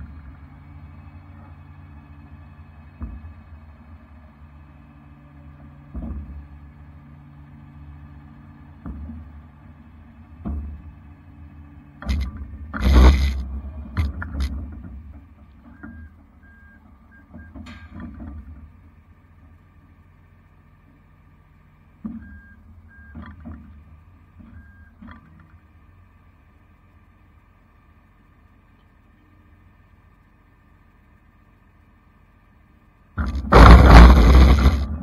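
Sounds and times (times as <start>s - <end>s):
truck engine rumble: 0.0s - 35.0s
sharp knocks: 33.2s - 35.0s.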